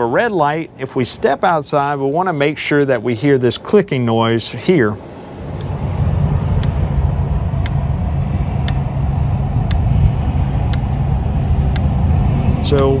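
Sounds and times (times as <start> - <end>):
low rumble: 5.0 - 13.0
spark igniter clicking: 5.5 - 5.8, 6.6 - 6.8, 7.6 - 7.8, 8.6 - 8.9, 9.7 - 9.9, 10.7 - 10.9.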